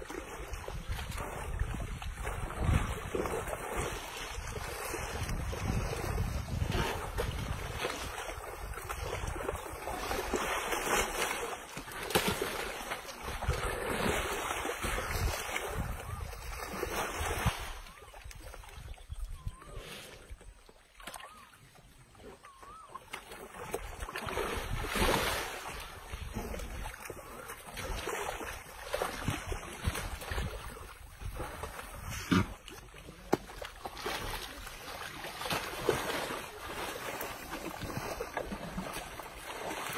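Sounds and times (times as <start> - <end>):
mud sloshing and splashing: 0.0 - 39.9
wind buffeting microphone: 0.5 - 9.6.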